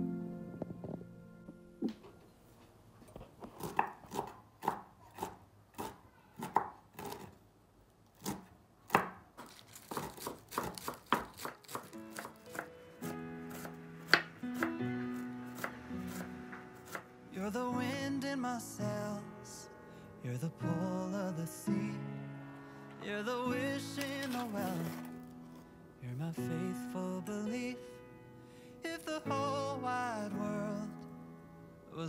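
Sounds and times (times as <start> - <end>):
soft music: 0.0 - 3.0, 11.0 - 32.0
knife chopping on wooden board: 3.6 - 7.3, 8.2 - 12.7, 13.5 - 14.7.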